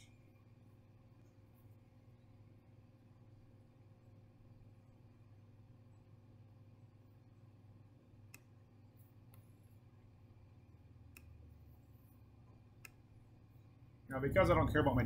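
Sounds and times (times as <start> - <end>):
low steady hum: 0.0 - 15.0
computer mouse clicks: 11.1 - 11.4, 12.8 - 13.0.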